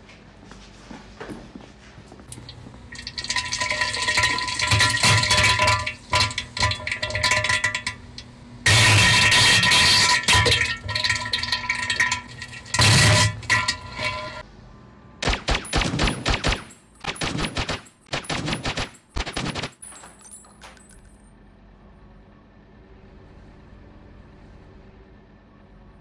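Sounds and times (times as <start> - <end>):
rapid sharp bangs: 15.2 - 19.8.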